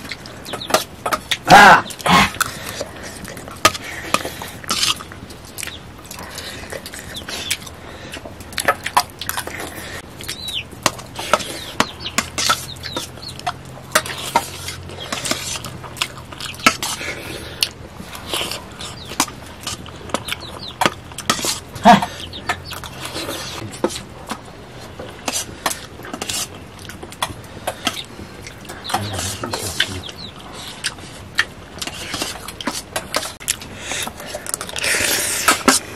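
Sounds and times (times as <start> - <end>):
chicken clucking: 0.0 - 2.4, 5.6 - 34.2.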